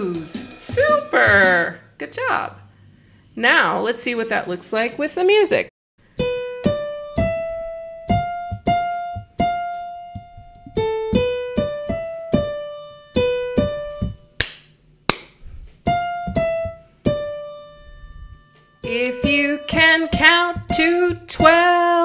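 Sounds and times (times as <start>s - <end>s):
keyboard piano melody: 6.0s - 14.4s, 15.8s - 22.0s.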